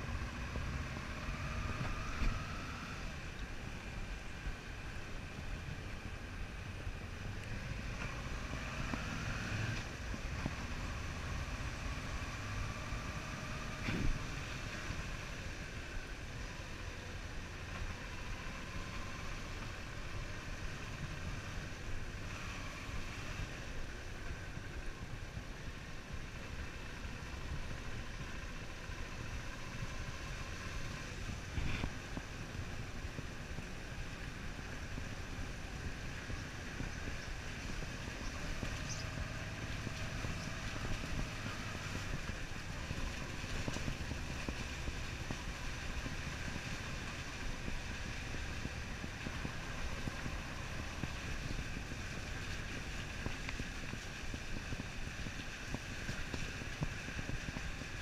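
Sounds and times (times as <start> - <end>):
motorcycle engine running: 0.0 - 58.0
road noise: 0.0 - 58.0
wind noise: 29.7 - 58.0.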